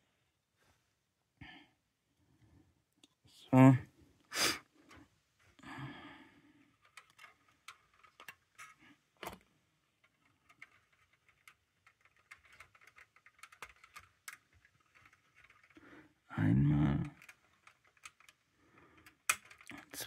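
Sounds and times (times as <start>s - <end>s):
plastic parts clicking and tapping: 6.7s - 16.3s, 17.0s - 20.0s.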